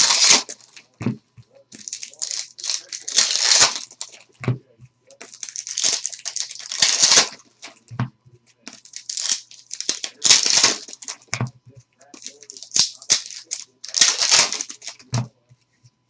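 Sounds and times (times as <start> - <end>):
wrappers tearing and crinkling: 0.0 - 0.8, 1.7 - 4.2, 5.2 - 7.8, 8.7 - 11.3, 12.1 - 15.1.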